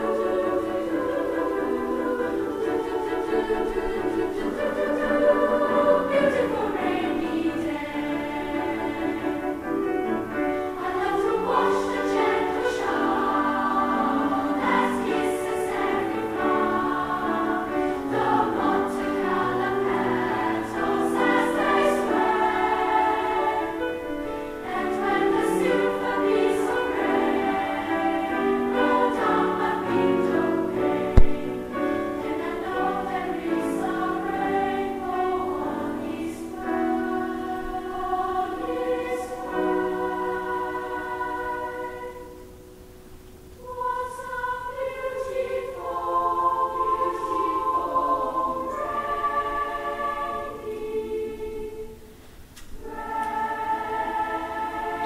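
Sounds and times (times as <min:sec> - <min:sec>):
girls' choir singing: 0:00.0 - 0:55.0
low thump: 0:31.2 - 0:31.4.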